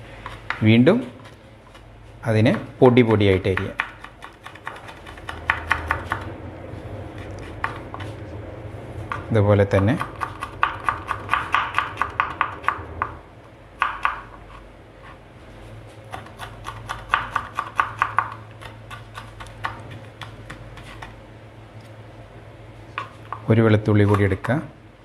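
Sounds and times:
knife chopping on wooden board: 3.5 - 6.3, 10.0 - 13.1, 13.8 - 14.4, 16.1 - 21.1.

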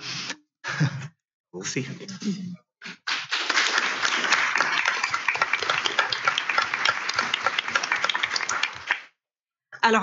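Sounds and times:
audience applauding: 2.9 - 9.2.

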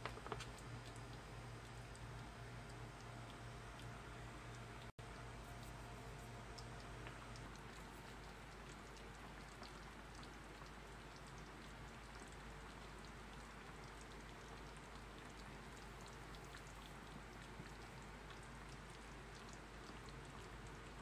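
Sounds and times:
small pops and crackles: 0.0 - 3.9
food simmering in frying pan: 0.0 - 21.0.

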